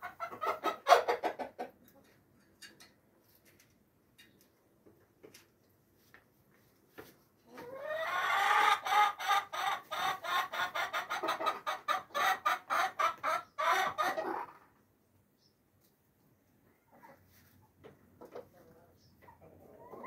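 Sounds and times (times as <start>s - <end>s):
chicken calling: 0.0s - 1.8s, 7.5s - 14.7s, 18.6s - 20.0s
chicken clucking: 0.0s - 3.6s, 7.0s - 20.0s.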